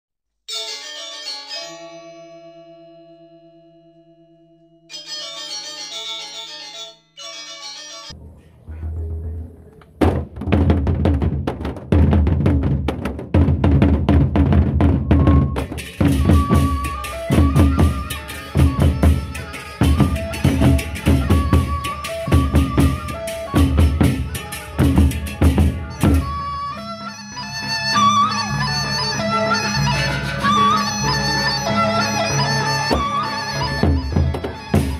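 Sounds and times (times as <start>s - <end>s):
barrel drums beaten in fast rhythm: 10.0s - 26.4s
melody of short pitched notes: 15.1s - 34.9s.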